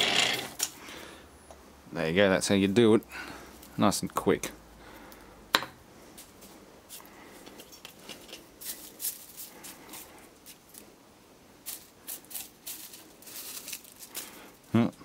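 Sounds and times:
hand brushing plastic chips: 7.9s - 11.0s, 11.6s - 15.0s.

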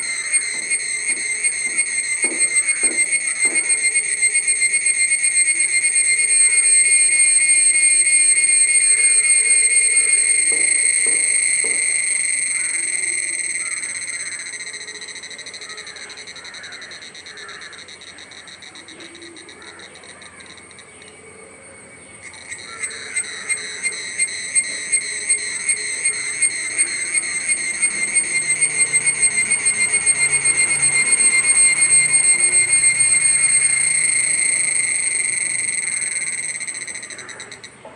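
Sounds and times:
cicadas singing: 0.0s - 37.9s.

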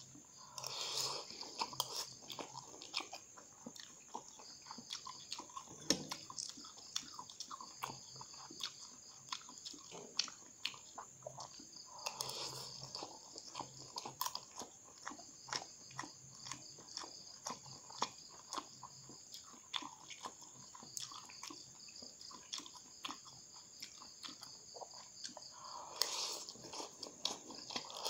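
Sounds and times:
chewing noodles: 0.0s - 28.0s.

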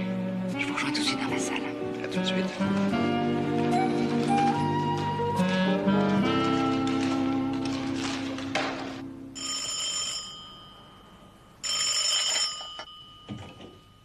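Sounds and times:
music notes: 0.9s - 9.1s
telephone bell ringing: 9.4s - 14.0s.

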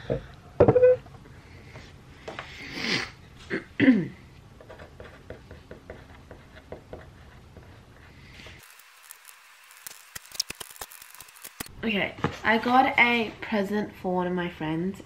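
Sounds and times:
pen scratching on paper: 4.7s - 8.6s.

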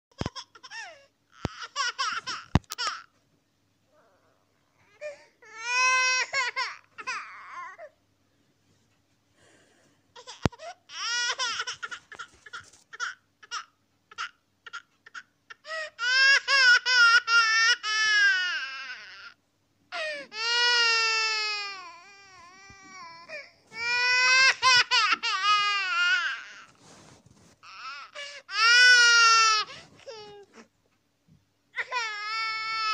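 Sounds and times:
baby crying: 3.9s - 8.0s, 10.2s - 26.7s, 27.6s - 30.6s, 31.8s - 32.9s.

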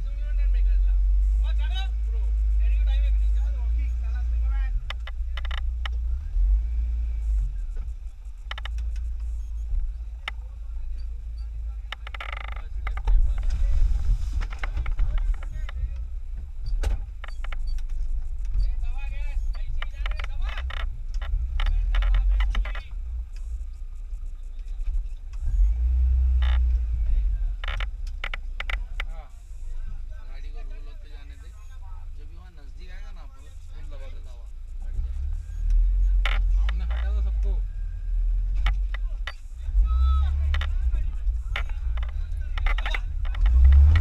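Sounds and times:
car engine idling: 0.0s - 44.0s
sharp clicks: 4.8s - 6.0s, 7.8s - 9.6s, 14.4s - 18.7s, 19.4s - 23.6s, 38.5s - 39.5s, 40.2s - 44.0s.

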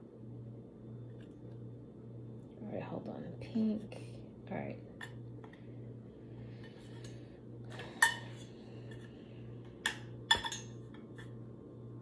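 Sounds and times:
steady low hum: 0.0s - 12.0s
containers clinking on a table: 9.8s - 11.3s.

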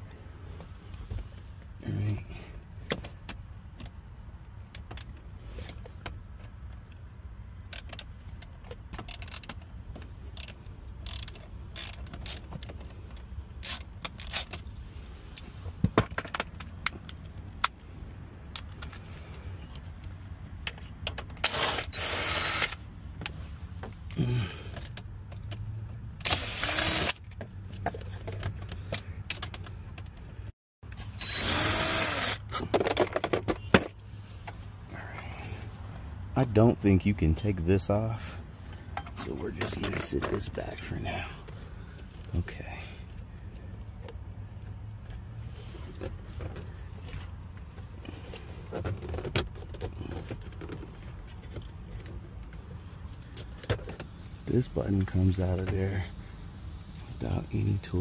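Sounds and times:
ratchet and tools clinking: 7.7s - 9.6s, 10.3s - 12.8s
cordless drill running: 21.5s - 22.8s, 26.3s - 27.2s, 31.2s - 32.4s.

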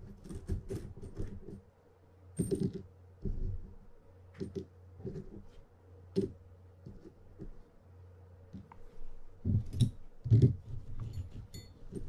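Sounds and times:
small metal parts clinking: 11.0s - 12.0s.

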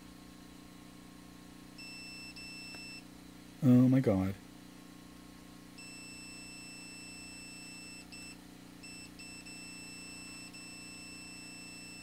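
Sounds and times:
multimeter continuity beeping: 1.8s - 3.0s, 5.8s - 12.0s.

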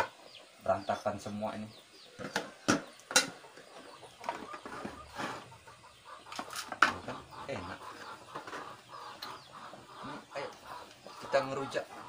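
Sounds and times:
chickens clucking: 0.0s - 12.0s
plates and bowls clattering: 2.2s - 3.5s, 6.3s - 7.1s.

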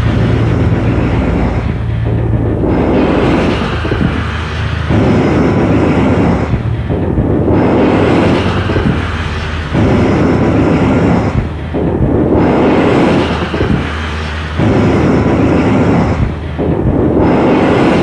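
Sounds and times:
low steady drone: 0.0s - 18.0s
rumbling wash of noise: 0.0s - 18.0s.

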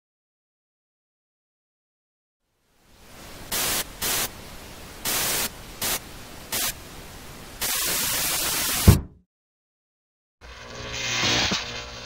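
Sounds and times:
television static hiss: 2.5s - 8.8s.

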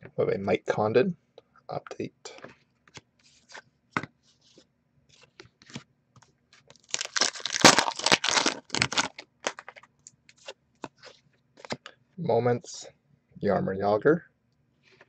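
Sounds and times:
crinkling and tearing: 6.5s - 11.8s.

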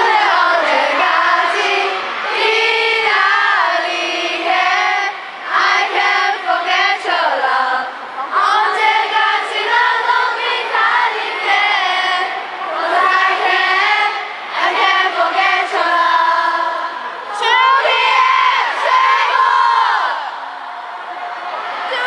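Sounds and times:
crowd screaming: 16.9s - 22.0s.

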